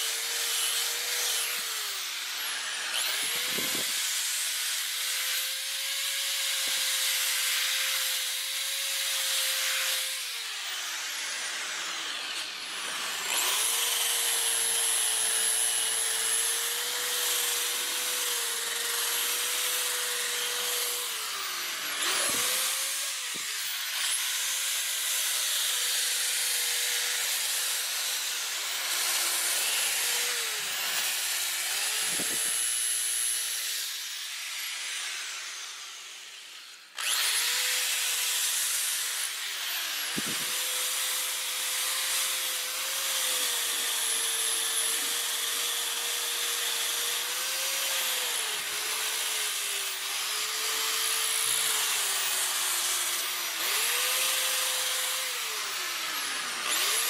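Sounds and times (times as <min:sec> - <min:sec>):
sanding disc hissing on wood: 0:00.0 - 0:04.6, 0:28.1 - 0:33.4
electric drill motor whine: 0:00.0 - 0:57.0.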